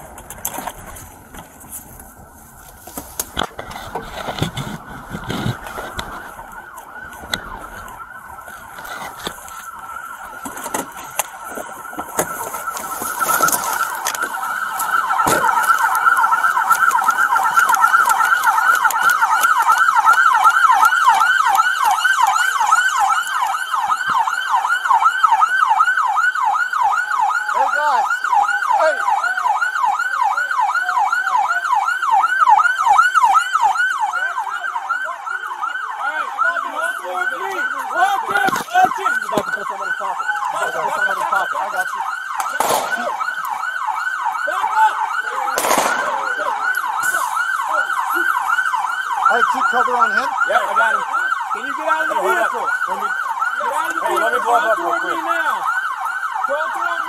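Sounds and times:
knocks and rustling of movement: 0.0s - 24.3s
police car siren: 0.0s - 57.0s.

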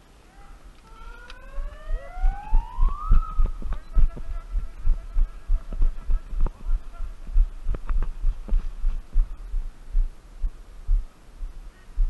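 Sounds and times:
siren winding up: 0.8s - 4.0s
low repeating thuds: 2.2s - 12.0s.

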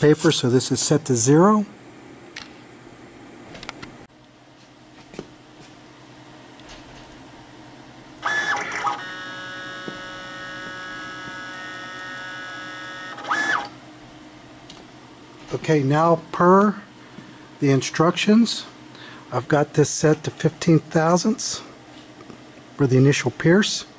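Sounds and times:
stepper motor whine: 8.2s - 13.8s.

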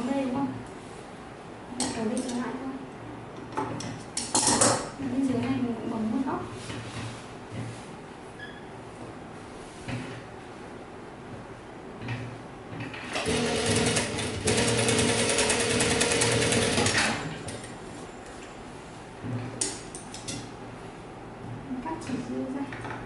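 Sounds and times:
sewing machine stitching: 13.0s - 17.3s.

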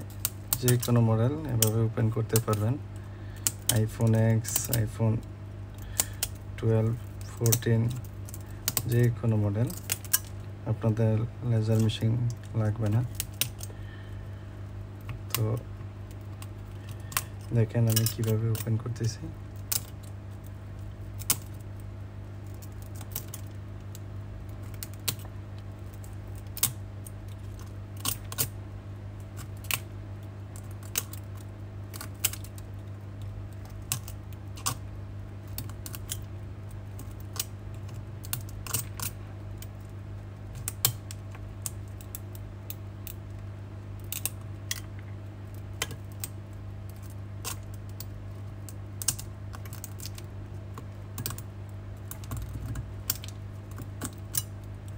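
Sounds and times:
glass cracking clicks: 0.1s - 1.0s, 9.7s - 10.3s, 17.9s - 18.7s, 19.6s - 20.1s, 21.2s - 21.6s, 22.4s - 28.5s, 30.6s - 32.6s, 33.2s - 34.8s, 35.5s - 36.3s, 36.9s - 39.9s, 40.5s - 42.4s, 44.0s - 44.9s, 45.5s - 54.5s.

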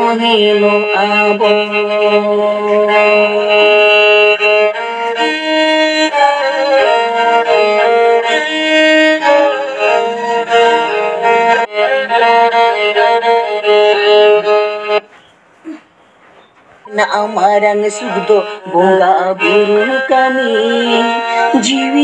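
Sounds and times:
melody of held notes: 0.7s - 15.0s.

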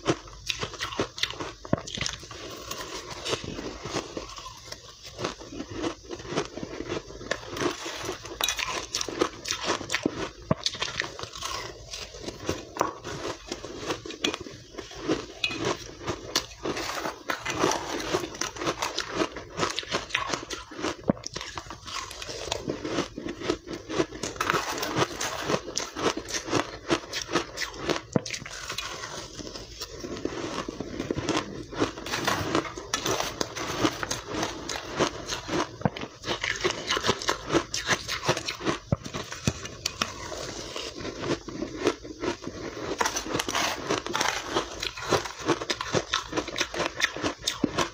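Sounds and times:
ice being bitten and chewed: 0.0s - 47.9s.

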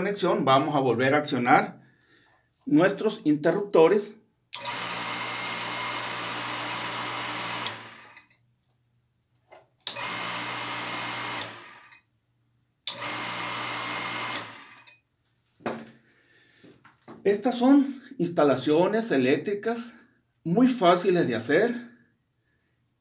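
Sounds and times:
electric water pump humming: 4.6s - 8.2s, 9.9s - 12.0s, 12.9s - 14.9s.

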